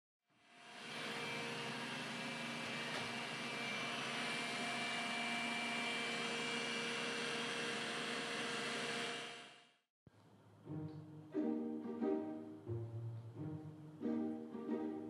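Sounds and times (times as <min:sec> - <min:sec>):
robot vacuum cleaner whirring: 0:00.6 - 0:09.6.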